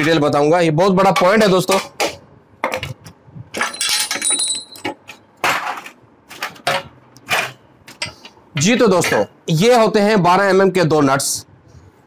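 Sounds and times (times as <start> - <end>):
wrench clanking on metal nuts: 3.5 - 9.3.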